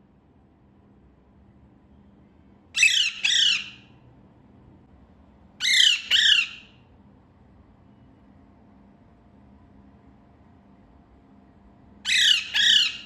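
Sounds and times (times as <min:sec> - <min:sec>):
parakeet squawking: 0:02.8 - 0:03.9, 0:05.6 - 0:06.8, 0:12.0 - 0:13.0.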